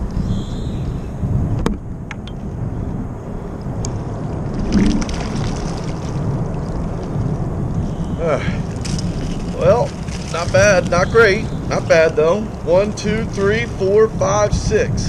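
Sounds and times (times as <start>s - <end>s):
steady low rumble: 0.0s - 15.0s
water splashing and gurgling: 4.1s - 13.9s.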